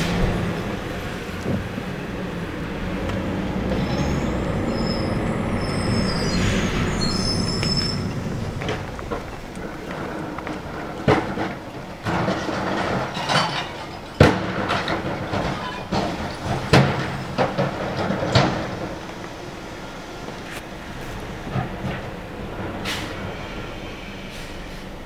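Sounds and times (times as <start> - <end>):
truck engine running: 0.0 - 13.1
carts banging against hopper: 6.2 - 19.2
recyclables clattering into hopper: 8.1 - 19.0.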